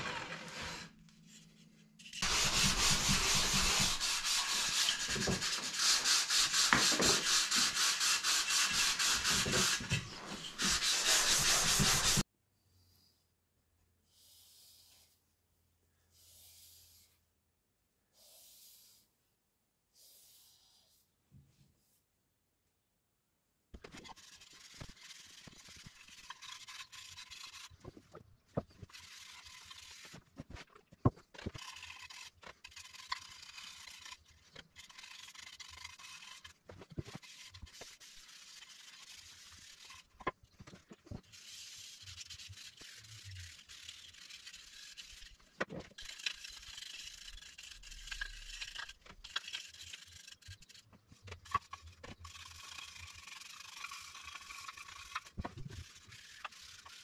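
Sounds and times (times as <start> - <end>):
hand rubbing on wooden box: 2.2 - 12.2.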